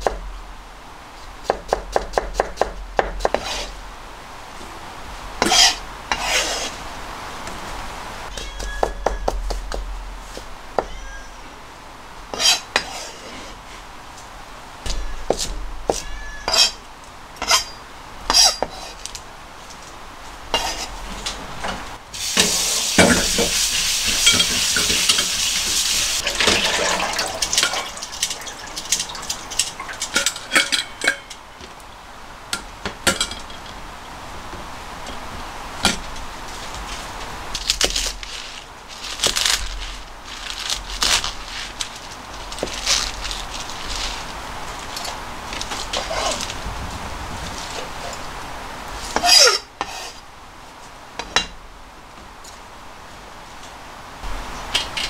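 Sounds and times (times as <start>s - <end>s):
knife chopping leafy greens: 1.4s - 3.7s, 37.6s - 45.0s
tap water running: 22.2s - 30.8s.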